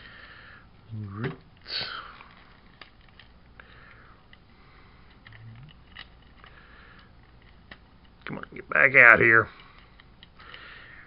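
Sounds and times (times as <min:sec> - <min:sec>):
soft breathing through nose: 0:00.0 - 0:00.8, 0:03.5 - 0:05.4, 0:06.4 - 0:07.3, 0:09.5 - 0:11.0
plastic toy parts clicking: 0:01.6 - 0:03.6, 0:05.0 - 0:08.2.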